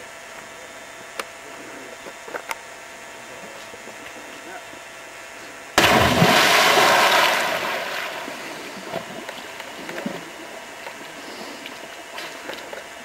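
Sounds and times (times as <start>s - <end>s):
person splashing into water: 5.8s - 10.2s.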